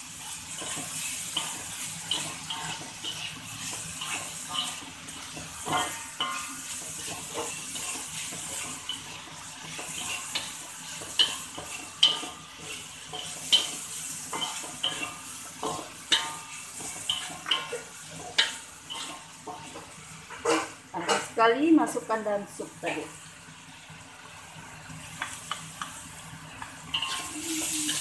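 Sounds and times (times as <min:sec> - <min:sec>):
oil sizzling: 0:00.0 - 0:28.0
wooden spatula scraping a wok: 0:00.2 - 0:21.3, 0:26.8 - 0:28.0.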